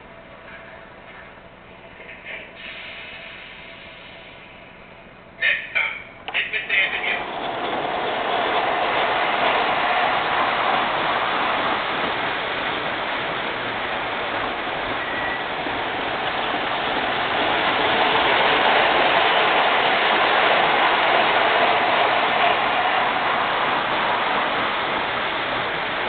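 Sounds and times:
model train running on track: 0:05.4 - 0:26.0.

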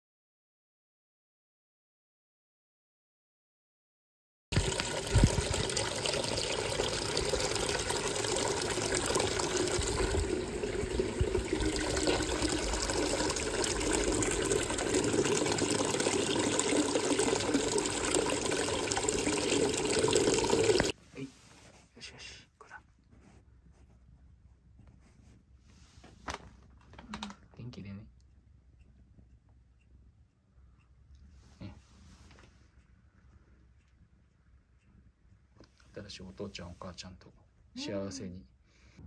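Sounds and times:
tap water splashing into tub: 0:04.6 - 0:20.9.

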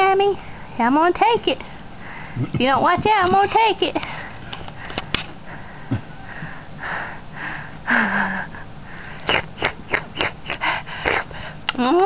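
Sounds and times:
baby sniffing and huffing: 0:09.1 - 0:11.5
baby smacking lips: 0:09.2 - 0:11.8.

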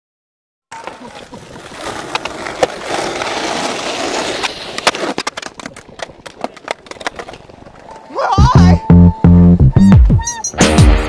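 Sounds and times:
skateboard clacking on ground: 0:00.7 - 0:08.7
skateboard wheels rolling on concrete: 0:00.7 - 0:10.6.

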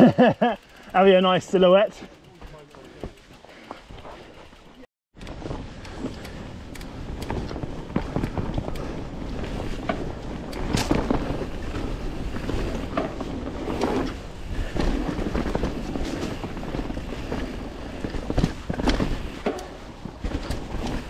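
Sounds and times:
bike rattling and knocking: 0:00.0 - 0:21.0
bike tyres crunching on dirt: 0:00.2 - 0:21.0
wind rumble on microphone: 0:05.2 - 0:21.0.

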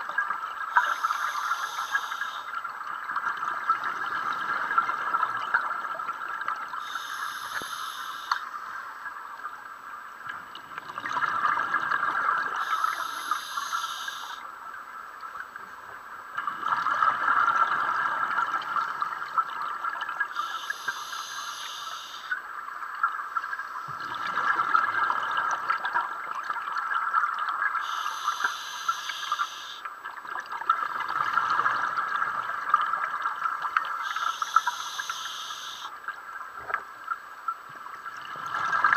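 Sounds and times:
regulator inhale hiss: 0:00.8 - 0:02.5, 0:06.8 - 0:08.7, 0:12.6 - 0:14.4, 0:20.3 - 0:22.4, 0:27.8 - 0:29.9, 0:34.0 - 0:35.9.

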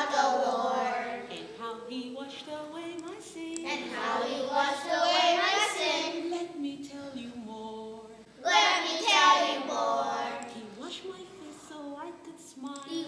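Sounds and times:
children singing: 0:00.0 - 0:01.6, 0:03.6 - 0:06.3, 0:08.4 - 0:10.6.

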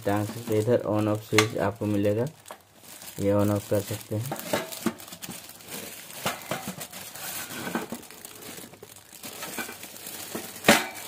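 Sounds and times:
plastic film crinkling: 0:00.0 - 0:11.0.

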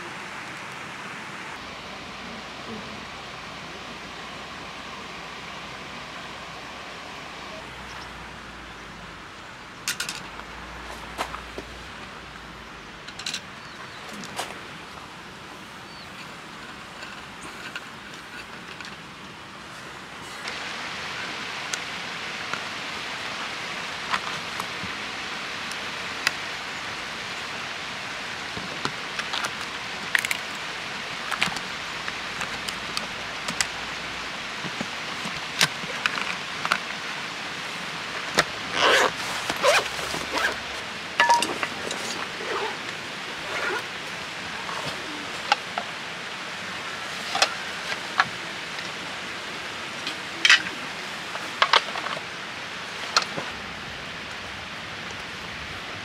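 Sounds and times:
steady hiss: 0:00.0 - 0:56.0
small parts clicking and knocking: 0:09.9 - 0:10.3.

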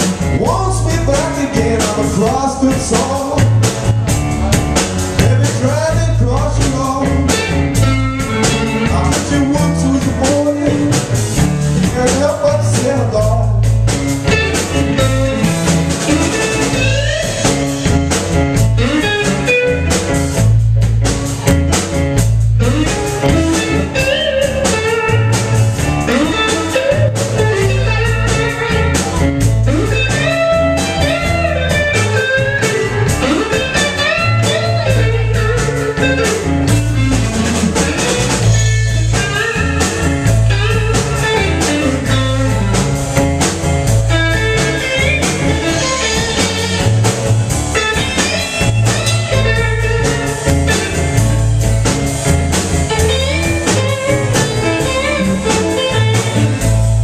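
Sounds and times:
bass guitar: 0:00.0 - 0:57.0
drum kit: 0:00.0 - 0:57.0
electric guitar lead lines: 0:00.0 - 0:57.0.

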